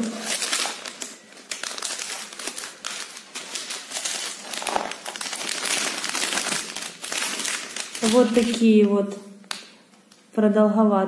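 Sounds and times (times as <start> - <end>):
scissors cutting plastic: 0.0 - 8.6
plastic crinkling: 0.0 - 10.2.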